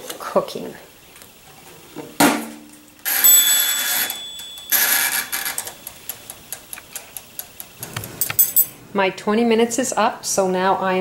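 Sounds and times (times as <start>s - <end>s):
timer dial winding whir: 3.0s - 8.3s.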